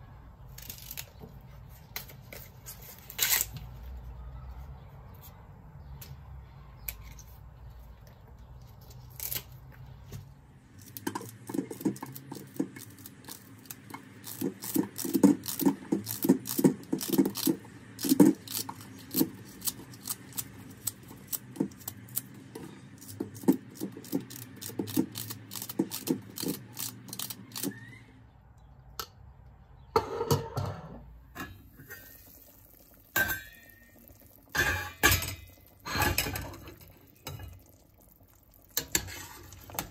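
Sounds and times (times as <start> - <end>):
metal pot clanks: 33.0 - 37.7.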